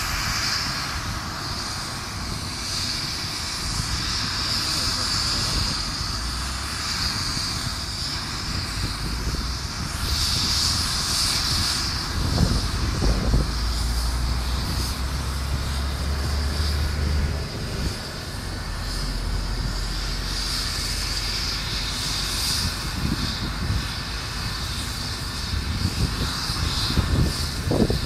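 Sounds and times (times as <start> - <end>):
lorry engine drone: 0.0 - 28.0
steady high whine: 0.0 - 28.0
cars passing: 12.5 - 22.0.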